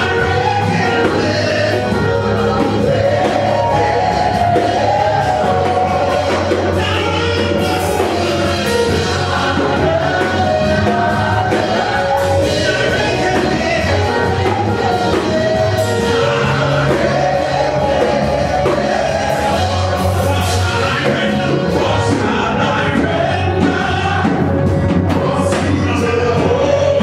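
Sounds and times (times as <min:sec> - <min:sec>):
man singing into a microphone: 0:00.0 - 0:02.7, 0:05.5 - 0:11.0, 0:20.1 - 0:27.0
keyboard chords and bass: 0:00.0 - 0:27.0.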